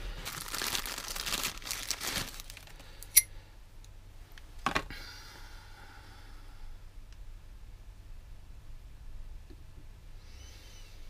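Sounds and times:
plastic bag crinkling: 0.0s - 2.8s.

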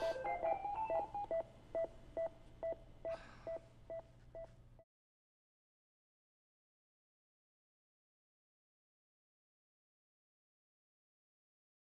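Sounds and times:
patient monitor beeping rapidly: 0.0s - 2.8s, 3.5s - 4.5s.

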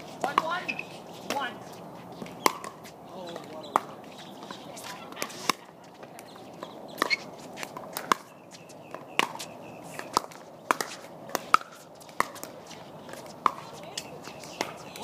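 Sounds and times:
ball bouncing on hard court: 0.2s - 1.5s, 2.3s - 8.3s, 8.9s - 15.0s.

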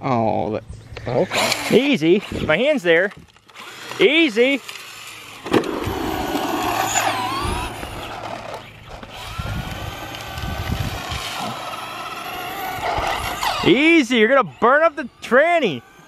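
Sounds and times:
radio-controlled car motor whining: 1.2s - 16.0s
tyres crunching on gravel: 4.6s - 13.5s.

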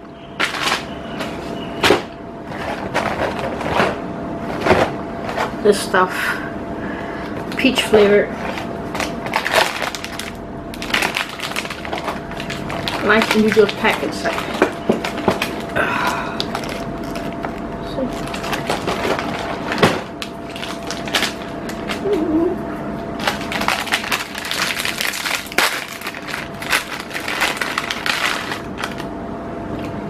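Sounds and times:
plastic wrapper crinkling: 0.0s - 1.4s, 8.3s - 22.5s, 23.1s - 29.1s.

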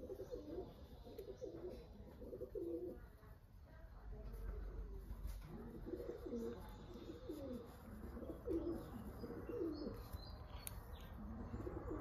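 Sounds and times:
dove cooing: 0.0s - 3.0s, 5.4s - 10.1s, 11.1s - 12.0s.

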